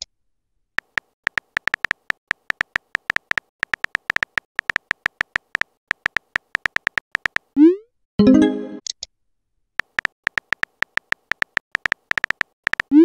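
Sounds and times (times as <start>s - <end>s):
keyboard tap clicks: 0.8s - 7.5s, 9.8s - 12.9s.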